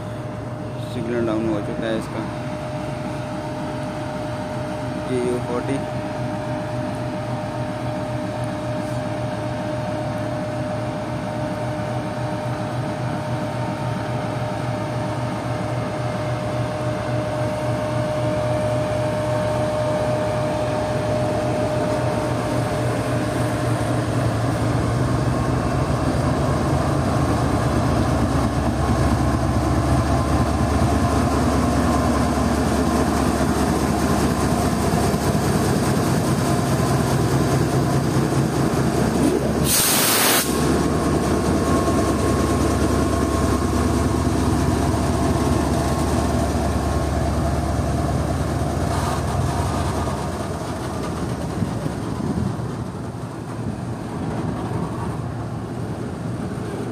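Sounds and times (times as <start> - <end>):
locomotive engine drone: 0.0 - 56.9
air hissing burst: 39.6 - 40.7
freight wagons rumbling: 40.6 - 56.9.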